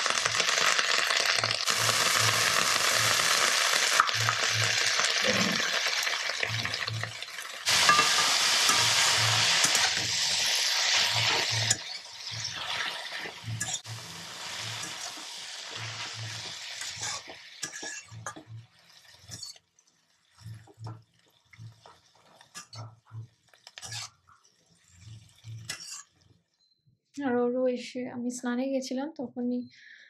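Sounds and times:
greens sizzling in a pan: 0:00.0 - 0:19.6
metal spatula scraping a pan: 0:04.0 - 0:19.7, 0:21.6 - 0:24.3, 0:24.9 - 0:26.2.

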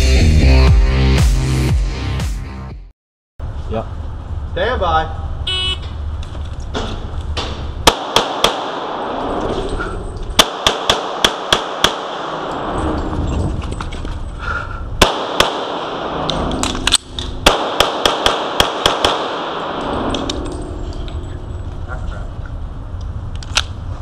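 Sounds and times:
pistol shots echoing indoors: 0:07.8 - 0:09.2, 0:10.4 - 0:12.6, 0:15.0 - 0:16.4, 0:17.4 - 0:20.2.

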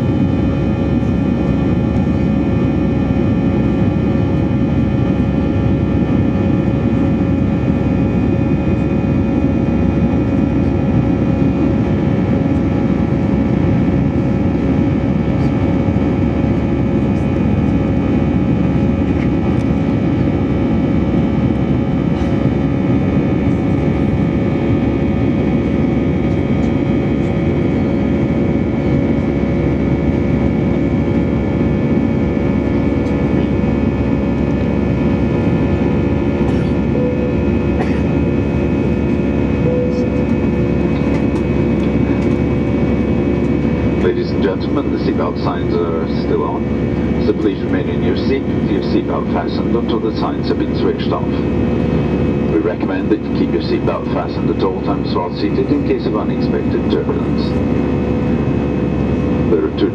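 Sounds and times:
jet engine and airflow rumble: 0:00.0 - 0:59.9
steady multi-tone whine: 0:00.0 - 0:59.9.

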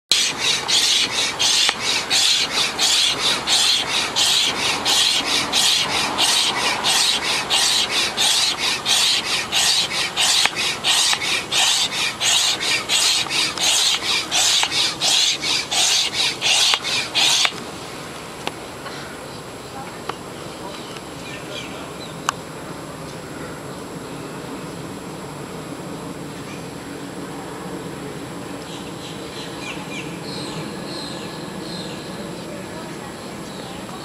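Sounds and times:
hand pump strokes of rushing air: 0:00.1 - 0:17.6.

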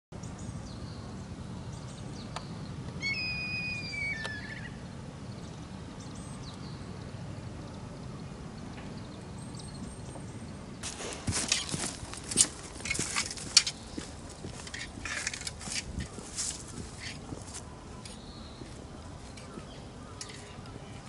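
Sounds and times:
outdoor background noise: 0:00.1 - 0:21.0
bird whistled call: 0:03.0 - 0:04.8.

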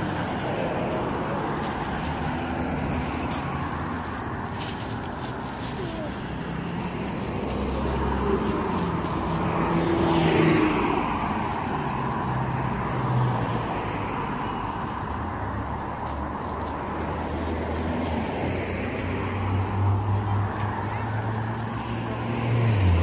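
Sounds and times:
road traffic rumble: 0:00.0 - 0:23.0
car passing close by: 0:06.5 - 0:14.4, 0:17.5 - 0:23.0.

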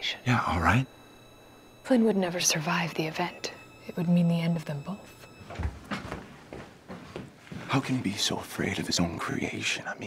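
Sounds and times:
background hiss: 0:00.0 - 0:10.0
faint high whine: 0:00.0 - 0:10.0
soft knocks and rustles: 0:05.4 - 0:07.7.

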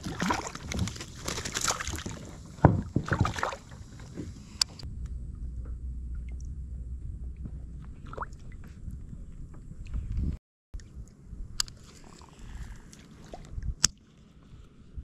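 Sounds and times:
steady low rumble: 0:02.0 - 0:13.8.

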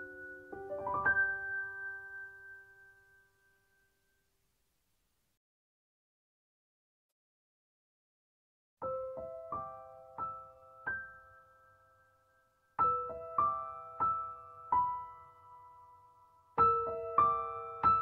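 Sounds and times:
slow gentle piano notes: 0:00.0 - 0:04.2, 0:08.8 - 0:18.0.

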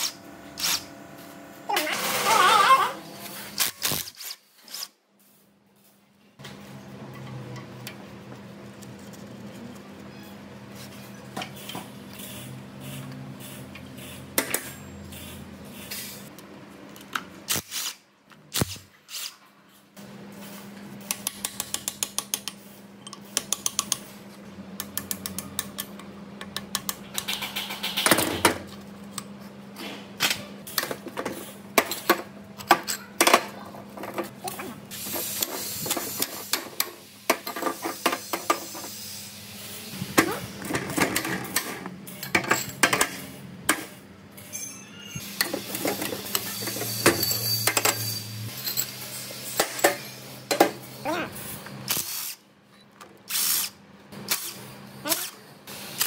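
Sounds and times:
metal tools clinking on metal: 0:44.4 - 0:50.6.

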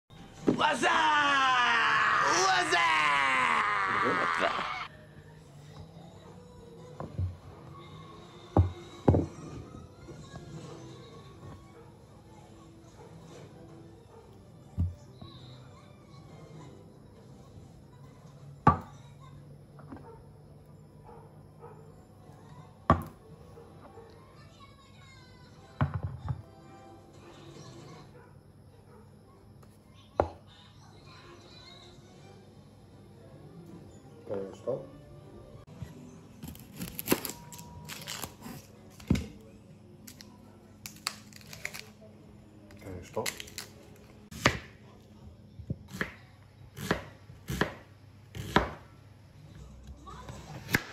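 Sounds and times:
onion handling clicks and crackles: 0:36.4 - 0:39.4, 0:40.0 - 0:42.0, 0:42.7 - 0:44.2.

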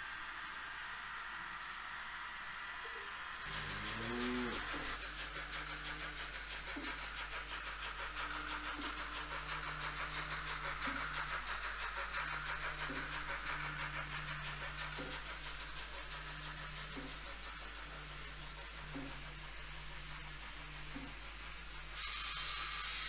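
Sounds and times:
low even hum: 0:03.5 - 0:05.3
model train wheels rattling: 0:03.5 - 0:18.8.

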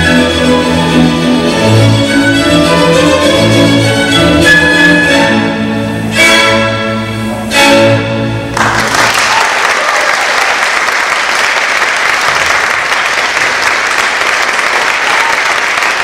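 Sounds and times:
orchestral music: 0:00.0 - 0:09.0
audience applause: 0:08.6 - 0:16.0.

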